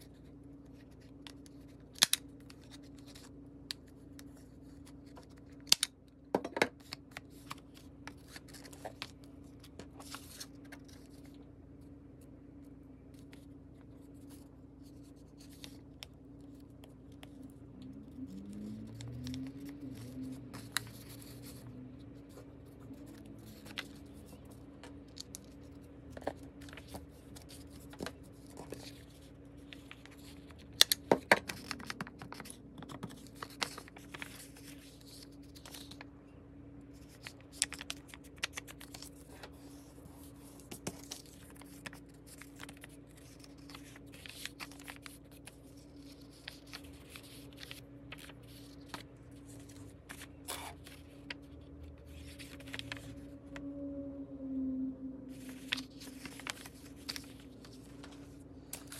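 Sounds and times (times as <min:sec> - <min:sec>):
faint low hum: 0:00.0 - 0:58.9
paper rustling: 0:06.7 - 0:11.4, 0:13.1 - 0:36.1, 0:36.9 - 0:53.4, 0:55.3 - 0:58.9.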